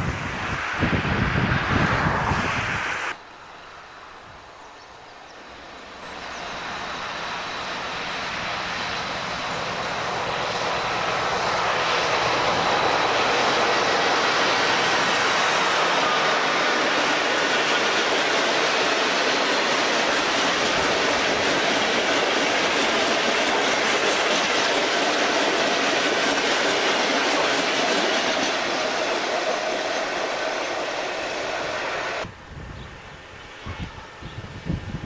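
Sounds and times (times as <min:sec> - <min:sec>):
wind buffeting microphone: 0:00.0 - 0:03.2, 0:31.4 - 0:35.0
diesel locomotive passing: 0:00.0 - 0:35.0.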